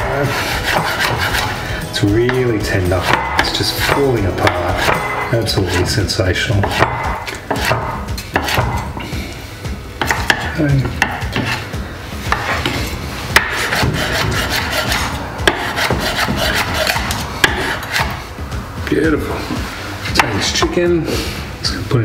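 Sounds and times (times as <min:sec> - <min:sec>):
knife scraping a wooden board: 0:00.2 - 0:01.6, 0:02.9 - 0:06.0, 0:06.6 - 0:08.9, 0:11.0 - 0:11.7, 0:12.3 - 0:18.2.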